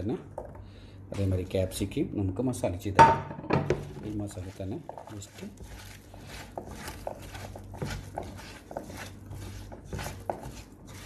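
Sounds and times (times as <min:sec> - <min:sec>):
hand squelching paste: 0:03.8 - 0:11.0.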